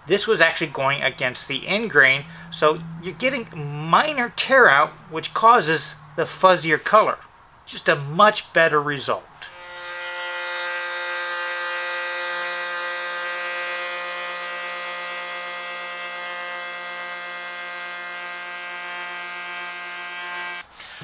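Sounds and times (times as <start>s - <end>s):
router bit cutting wood: 9.5s - 20.6s
router whining: 9.5s - 20.6s.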